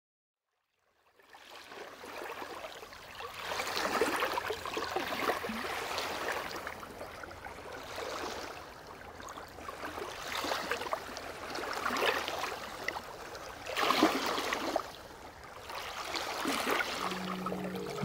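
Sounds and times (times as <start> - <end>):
lake waves lapping on pebbles: 9.6 - 18.0.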